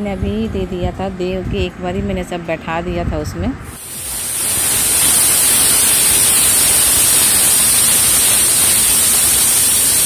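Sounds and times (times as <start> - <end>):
pressure cooker hissing steam: 3.7 - 10.0.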